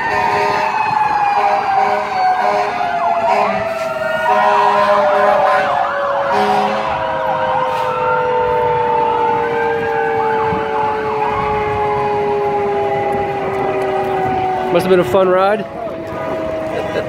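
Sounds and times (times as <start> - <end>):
emergency vehicle sirens wailing: 0.0 - 17.0
horn blasts: 0.1 - 0.8, 1.4 - 7.0.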